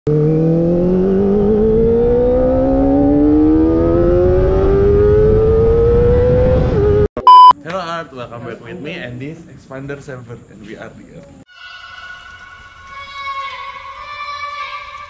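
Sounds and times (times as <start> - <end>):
motorcycle engine revving: 0.1 - 7.1
loud electronic beep: 7.2 - 7.5.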